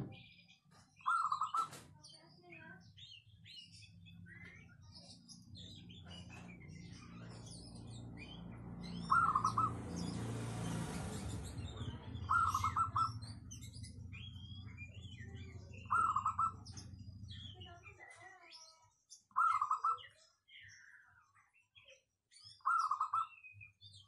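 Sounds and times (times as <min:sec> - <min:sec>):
small birds twittering: 0:00.0 - 0:24.0
dove cooing: 0:09.0 - 0:09.8, 0:12.0 - 0:13.2, 0:15.7 - 0:16.7.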